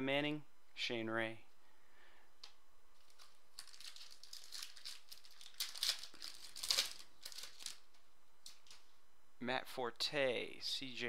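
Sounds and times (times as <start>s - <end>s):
foil wrapper tearing and crinkling: 3.1s - 7.9s.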